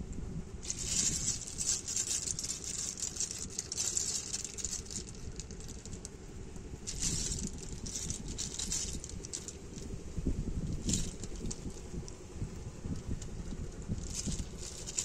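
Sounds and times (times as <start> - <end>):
snail shells clicking and rattling: 0.6 - 6.2, 6.8 - 10.0, 10.6 - 12.3, 12.9 - 15.0.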